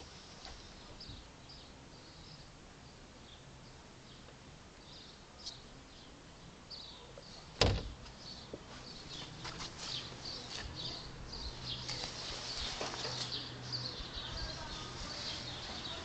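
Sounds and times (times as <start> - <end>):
van door shutting: 7.6 - 8.0.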